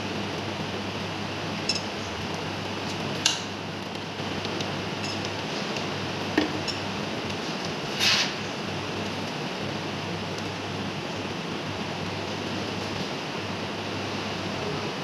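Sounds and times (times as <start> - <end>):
metal tools clicking on metal: 1.7 - 2.0, 5.0 - 5.9.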